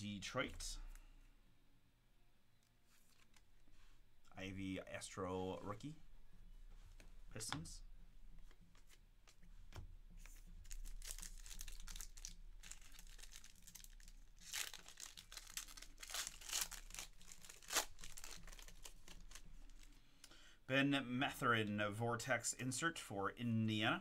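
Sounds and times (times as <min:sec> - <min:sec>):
foil wrapper ripping: 0:10.6 - 0:19.9
foil wrapper crinkling: 0:10.6 - 0:20.0.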